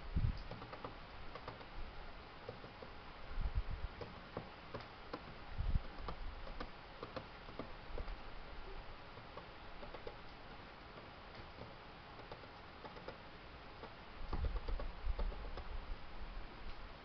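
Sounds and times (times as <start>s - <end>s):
light ticks and clicks: 0.3s - 1.8s, 4.0s - 8.3s, 9.1s - 13.2s, 13.8s - 15.8s.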